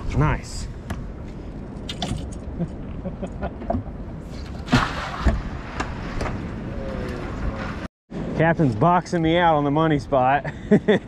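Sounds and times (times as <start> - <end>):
rustling splashing burst: 4.6 - 5.6.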